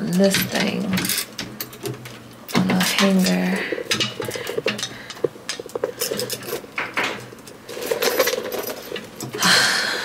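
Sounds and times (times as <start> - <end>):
handbags clinking and rattling: 2.6 - 9.4.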